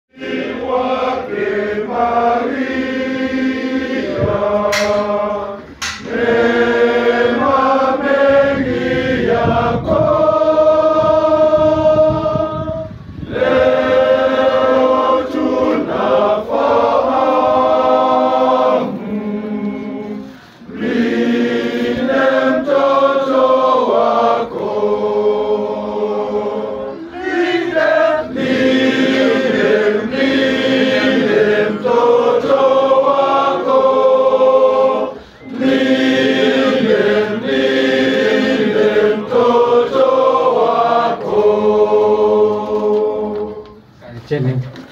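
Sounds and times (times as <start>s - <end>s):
men's choir singing a hymn: 0.1s - 43.9s.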